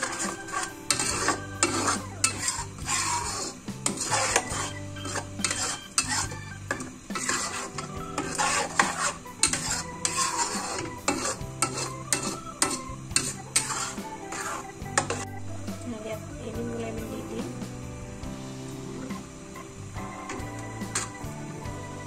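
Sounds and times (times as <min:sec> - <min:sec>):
metal spatula scraping wok: 0:00.0 - 0:15.3, 0:20.9 - 0:21.3
paste sizzling: 0:00.0 - 0:22.0.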